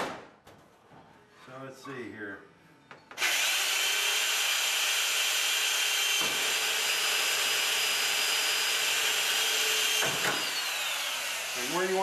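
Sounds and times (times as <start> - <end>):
electric drill drilling metal: 3.2 - 12.0.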